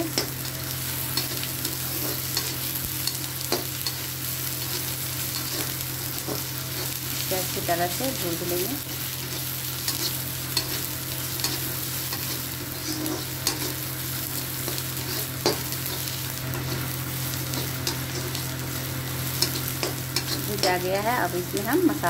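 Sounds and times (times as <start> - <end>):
onions sizzling in hot oil: 0.0 - 22.0
spoon stirring and scraping: 11.4 - 13.8.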